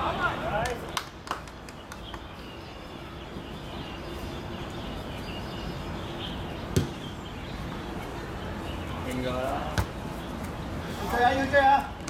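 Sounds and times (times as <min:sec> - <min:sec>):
ball game background noise: 0:06.6 - 0:10.8.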